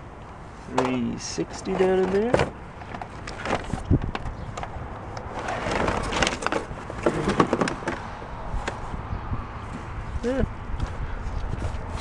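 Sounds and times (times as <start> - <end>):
plastic and cables rattling in box: 0.7 - 8.8.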